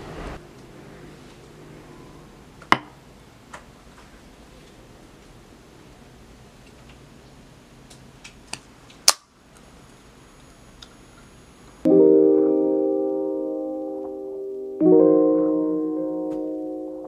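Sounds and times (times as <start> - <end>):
soft piano music: 11.9 - 17.0.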